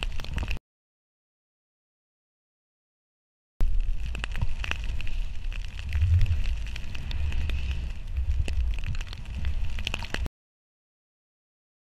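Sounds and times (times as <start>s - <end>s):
crackling ticks: 0.0s - 0.6s, 3.6s - 10.3s
wind rumble on microphone: 0.0s - 0.6s, 3.6s - 10.3s
skis hissing through snow: 4.8s - 8.4s.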